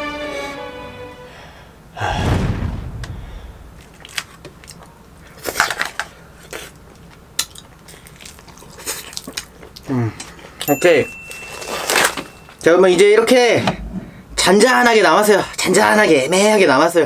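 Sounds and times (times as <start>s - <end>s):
background music: 0.0s - 1.7s
low rumbling: 2.0s - 5.0s
eating mouth sounds: 6.4s - 10.4s.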